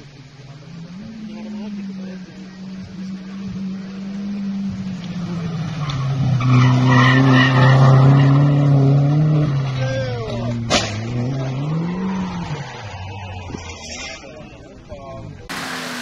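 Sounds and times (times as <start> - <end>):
race car engine: 0.0 - 16.0
tyres squealing: 5.4 - 8.8.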